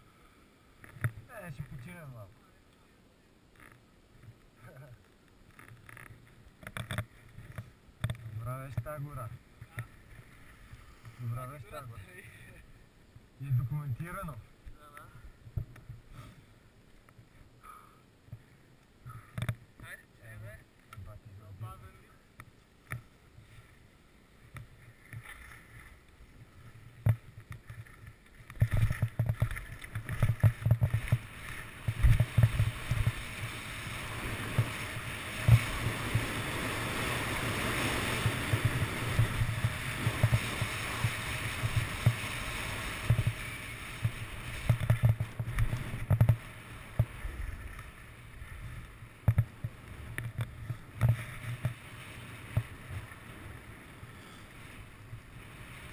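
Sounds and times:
skis scraping over snow: 7.1s - 12.6s, 23.3s - 55.9s.

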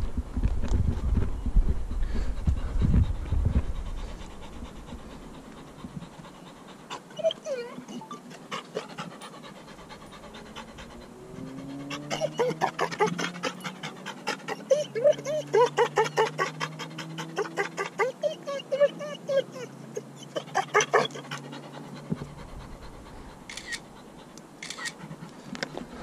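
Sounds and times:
microphone handling rumble: 0.0s - 5.1s
puppy panting: 1.9s - 26.0s
puppy whining: 5.5s - 23.9s.

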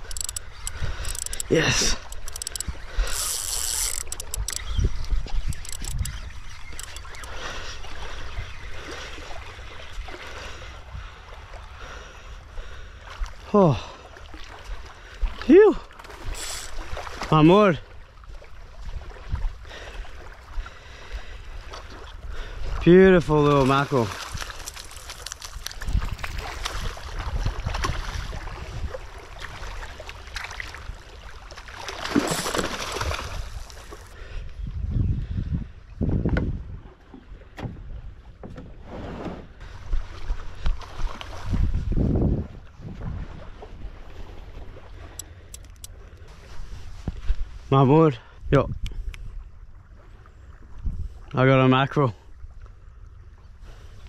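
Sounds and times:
faint crackles: 0.0s - 4.6s, 24.1s - 26.8s
wind buffeting microphone: 0.0s - 7.4s, 25.6s - 29.8s, 33.0s - 38.8s, 39.5s - 44.8s, 50.6s - 51.2s
small waves lapping on shore: 0.0s - 34.4s, 39.6s - 48.4s
small waves washing onto sand: 13.1s - 34.2s.

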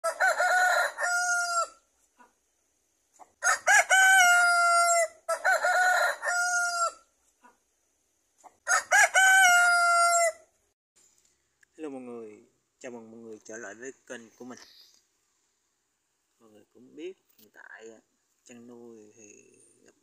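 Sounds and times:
rooster crowing: 0.0s - 1.8s, 3.4s - 7.1s, 8.6s - 10.5s.

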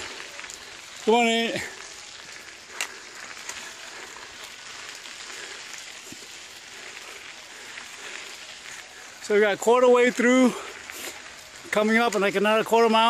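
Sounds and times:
bike tyres crackling on dirt: 0.0s - 13.0s.

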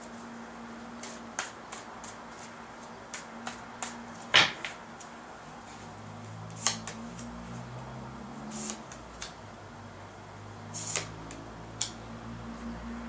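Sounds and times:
cards being shuffled: 0.9s - 7.4s, 8.5s - 9.4s, 10.8s - 11.9s.

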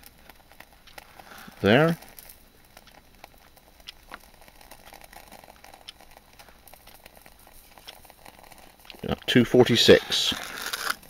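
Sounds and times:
low hiss: 1.2s - 2.8s, 9.0s - 10.6s
match flame crackling: 3.8s - 11.0s.

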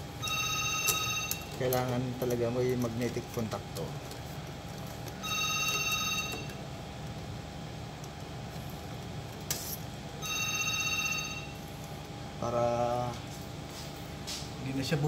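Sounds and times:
electronic telephone ringing: 0.2s - 2.0s, 5.2s - 6.6s, 10.2s - 11.7s.

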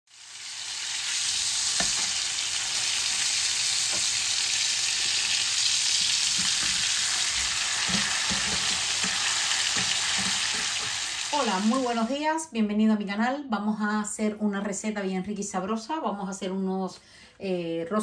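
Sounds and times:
steaks sizzling in pan: 0.1s - 12.1s
fork knocking: 7.8s - 11.0s.

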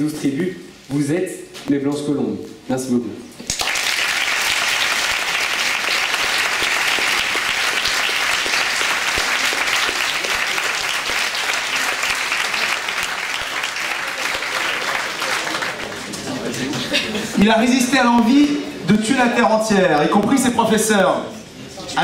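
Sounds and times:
audience applauding: 3.5s - 17.0s.

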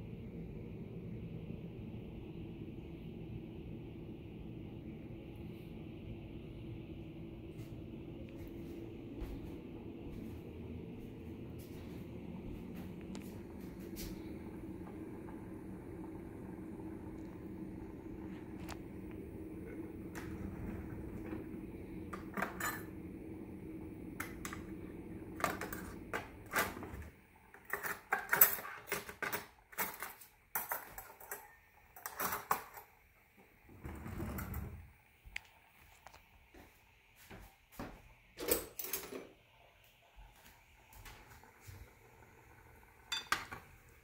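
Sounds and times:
steady hum: 0.0s - 29.0s
metal utensils clinking: 22.1s - 23.0s, 27.5s - 32.9s, 43.1s - 43.6s.

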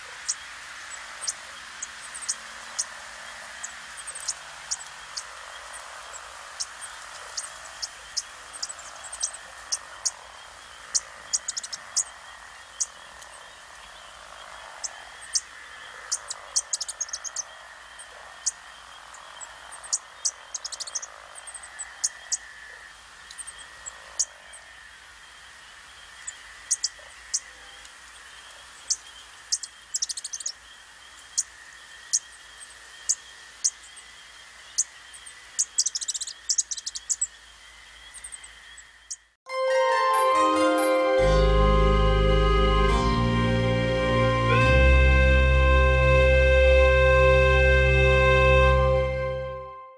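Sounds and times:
hazy wildlife chorus: 0.0s - 39.4s
high-pitched chirps: 39.5s - 47.3s.

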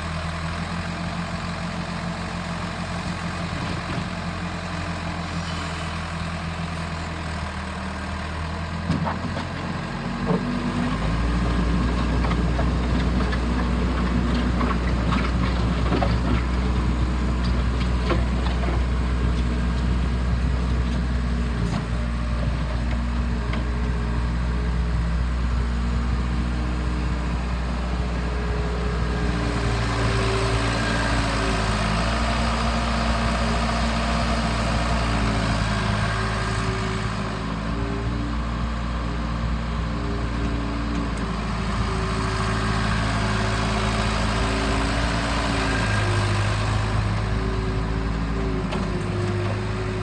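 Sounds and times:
diesel engine running: 0.0s - 50.0s.

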